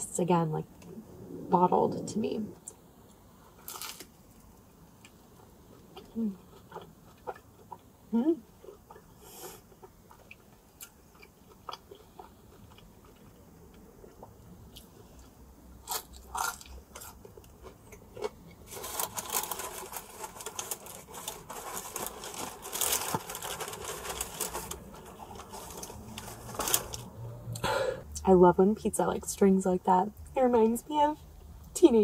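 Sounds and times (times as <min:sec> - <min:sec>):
person chewing crunchy pizza: 0:03.5 - 0:27.0.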